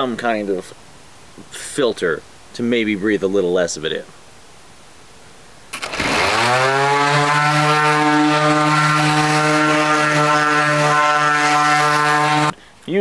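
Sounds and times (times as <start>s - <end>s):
orbital sander on wood: 5.8s - 12.6s.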